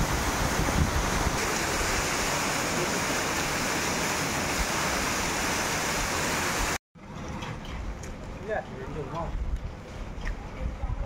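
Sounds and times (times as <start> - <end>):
heavy rain pouring: 0.0 - 6.8.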